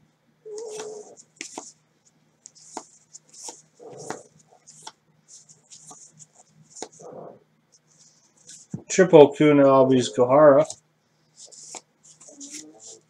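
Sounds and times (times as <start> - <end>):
cards sliding off a stack: 11.4 - 13.0.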